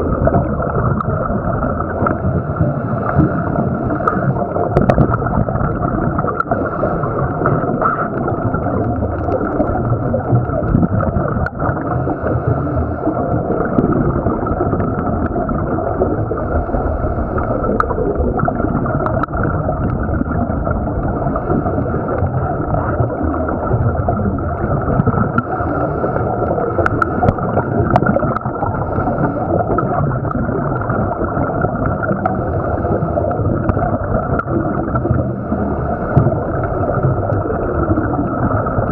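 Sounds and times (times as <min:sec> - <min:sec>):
muffled underwater water wash: 0:00.0 - 0:38.9
faint clicks: 0:26.7 - 0:29.2.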